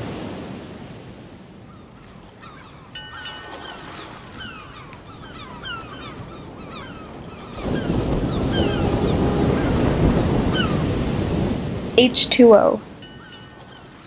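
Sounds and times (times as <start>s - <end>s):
surf breaking on beach: 0.0s - 14.0s
wind on microphone: 0.0s - 14.0s
small birds chirping: 1.7s - 10.9s.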